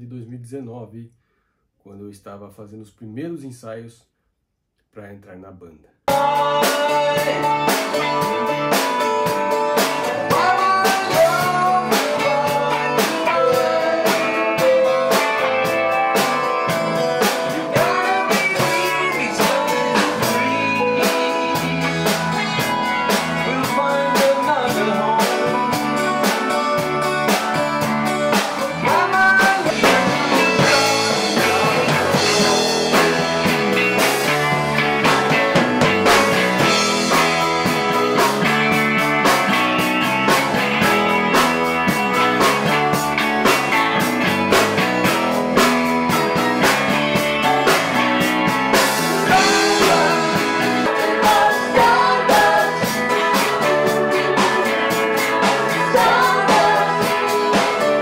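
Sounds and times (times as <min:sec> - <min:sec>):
rock band music: 0:06.1 - 0:58.0.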